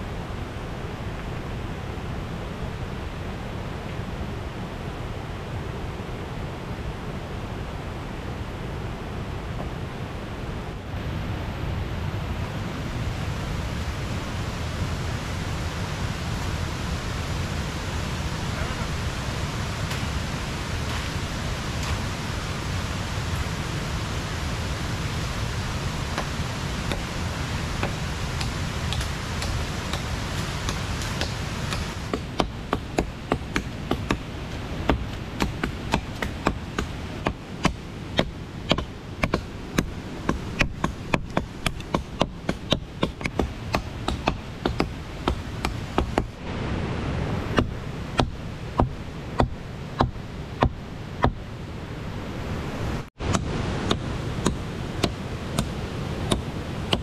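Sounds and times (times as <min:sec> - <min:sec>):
river water rushing: 0:00.0 - 0:57.0.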